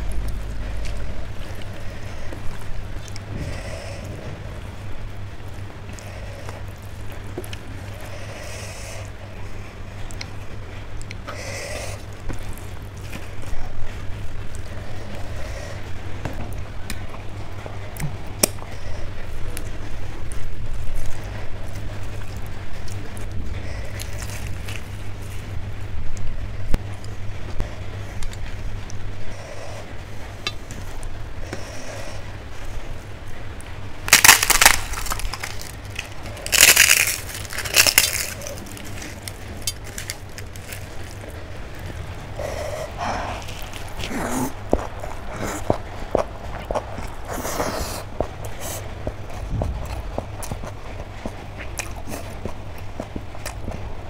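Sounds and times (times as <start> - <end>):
chewing and mouth noises: 0.0 - 54.0
steady low rumble: 0.0 - 54.0
crisp snack crunching: 20.3 - 25.6, 34.0 - 53.9.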